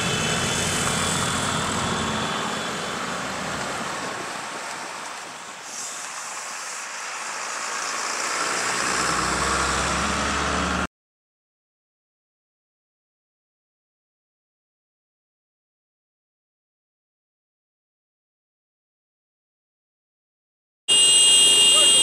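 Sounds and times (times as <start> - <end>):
motor scooters passing: 0.0 - 4.6, 6.3 - 10.9
bus passing: 0.0 - 10.9
car passing: 0.0 - 10.9.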